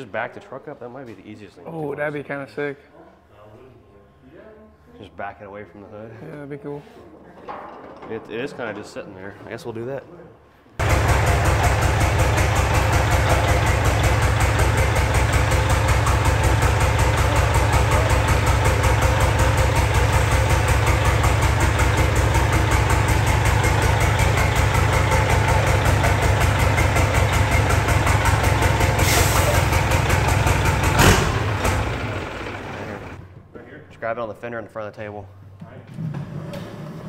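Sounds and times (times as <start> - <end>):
diesel engine idling: 10.8 - 33.4.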